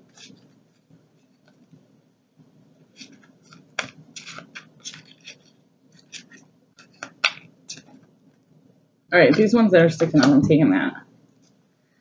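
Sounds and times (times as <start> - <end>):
cards being shuffled: 0.0 - 1.7, 2.9 - 8.0.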